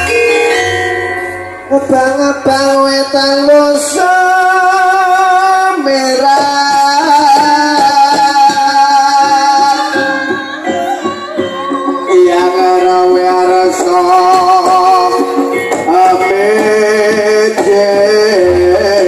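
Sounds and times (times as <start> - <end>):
gamelan percussion strikes: 0.0 - 2.8, 6.9 - 18.0
person singing long notes: 0.0 - 19.0.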